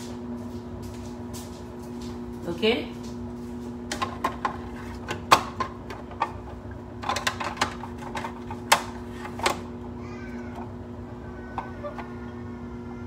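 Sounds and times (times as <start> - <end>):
steady low hum: 0.0 - 13.0
kitchen utensils clicking and tapping: 3.9 - 9.6.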